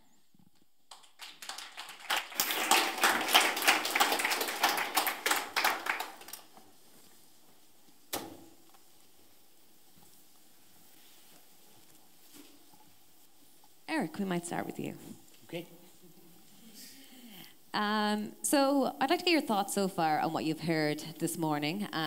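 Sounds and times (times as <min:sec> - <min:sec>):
audience applauding: 0:00.9 - 0:06.6.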